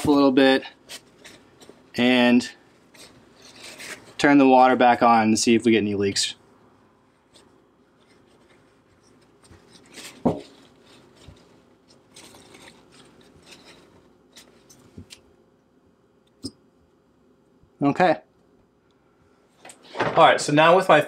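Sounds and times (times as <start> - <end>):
paper towel rustling: 0.0 - 15.2.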